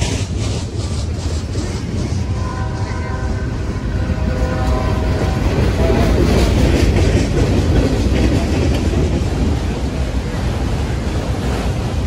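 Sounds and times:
freight train wheels rumbling: 0.0 - 12.0
wheels clicking over rail joints: 4.6 - 12.0.

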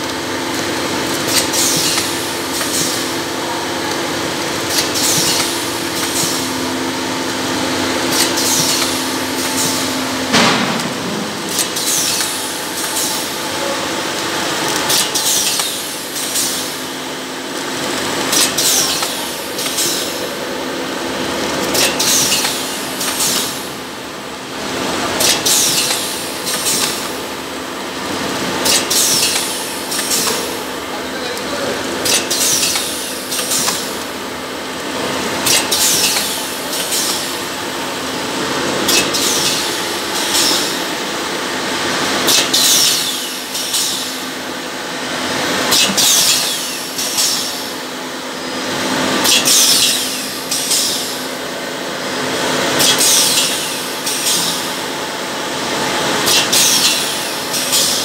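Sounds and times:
machine clicks and hiss: 0.0 - 4.0, 4.6 - 6.6, 8.0 - 16.9, 17.5 - 20.3, 21.4 - 23.7, 25.2 - 27.3, 28.6 - 30.7, 31.4 - 34.2, 34.8 - 37.5, 38.9 - 41.0, 42.2 - 44.3, 45.7 - 47.8, 49.2 - 51.4, 52.7 - 54.9, 56.2 - 58.0
packing machine humming: 0.0 - 58.0.

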